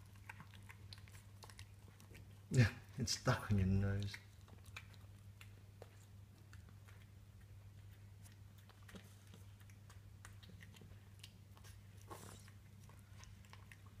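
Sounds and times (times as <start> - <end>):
cat chewing food: 0.0 - 14.0.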